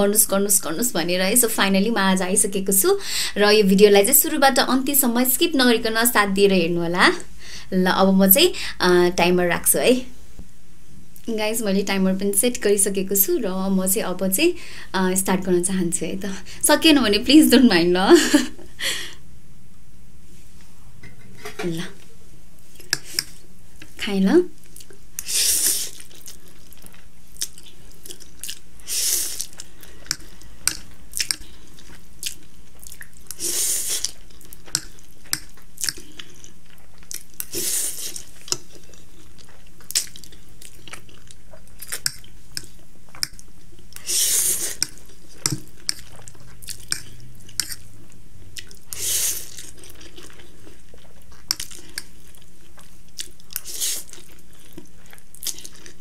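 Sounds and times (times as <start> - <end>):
faint steady hum: 0.0 - 56.0
wet chewing: 24.6 - 56.0
noodle slurping: 25.2 - 26.8, 28.8 - 30.3, 44.0 - 47.8, 48.9 - 50.3.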